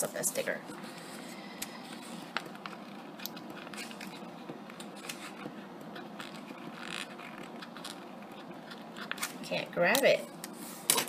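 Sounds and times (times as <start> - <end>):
tweezers scratching paper sticker: 1.9 - 10.2.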